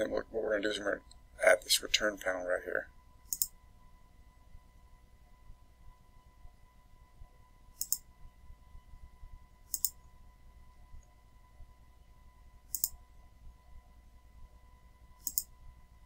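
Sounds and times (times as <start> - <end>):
faint electrical hum: 0.0 - 16.0
computer mouse clicks: 3.3 - 3.6, 7.8 - 8.1, 9.7 - 10.0, 12.7 - 13.0, 15.2 - 15.5.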